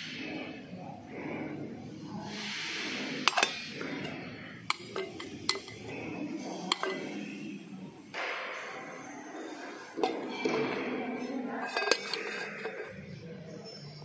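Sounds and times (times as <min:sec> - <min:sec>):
metal tins clinking: 0:03.3 - 0:07.4, 0:09.6 - 0:10.8, 0:11.4 - 0:13.0.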